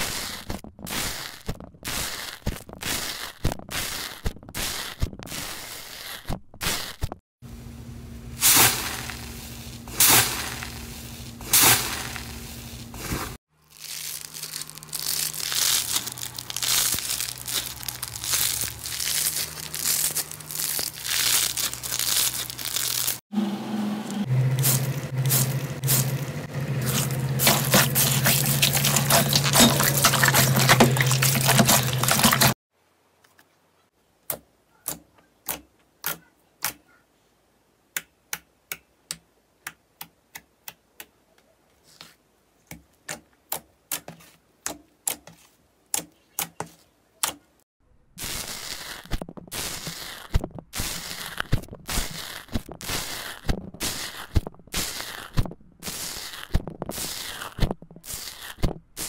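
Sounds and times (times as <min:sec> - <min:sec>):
foam slime crunching: 0:00.0 - 0:07.0, 0:08.4 - 0:23.2, 0:24.6 - 0:32.6, 0:48.2 - 0:59.0
hand squishing crackling slime: 0:12.9 - 0:23.2, 0:26.9 - 0:32.5, 0:48.2 - 0:59.0.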